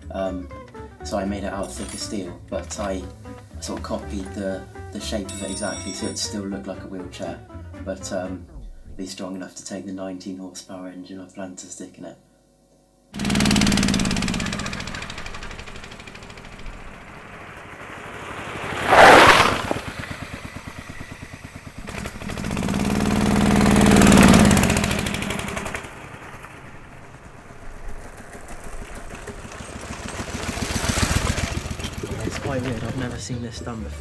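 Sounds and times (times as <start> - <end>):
small petrol engine revving: 13.2 - 33.2.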